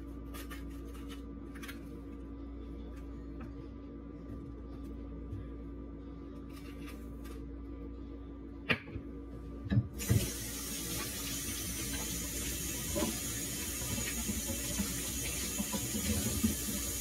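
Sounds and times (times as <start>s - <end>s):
water running into sink: 10.0s - 17.0s.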